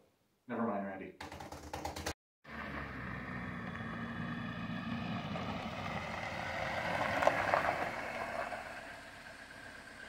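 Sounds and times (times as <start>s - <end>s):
car engine approaching: 2.5s - 10.0s.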